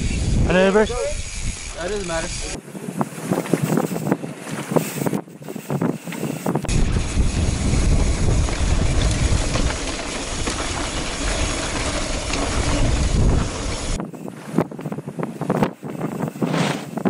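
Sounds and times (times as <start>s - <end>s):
wind buffeting microphone: 0.0s - 17.0s
tyres rumbling over dirt: 6.7s - 14.5s.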